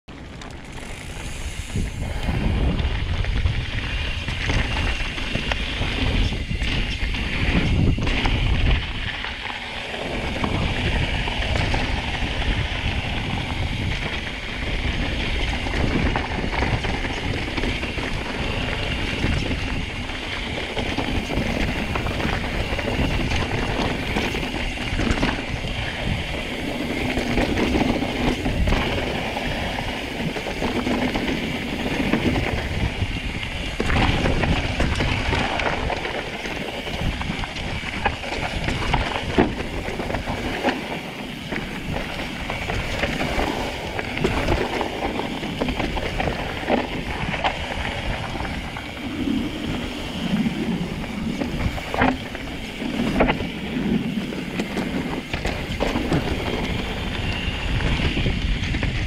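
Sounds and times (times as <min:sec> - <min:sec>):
bike rattling: 0:00.1 - 0:59.0
wind buffeting microphone: 0:00.1 - 0:59.0.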